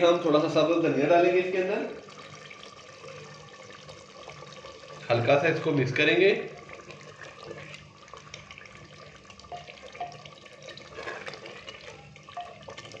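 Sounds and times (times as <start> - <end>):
spoon stirring wet curry: 6.6 - 13.0.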